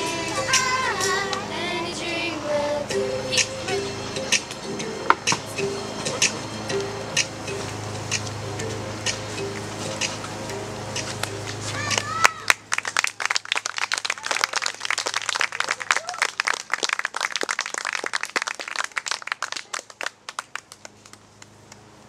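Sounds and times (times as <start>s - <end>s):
audience applauding: 11.9s - 21.5s.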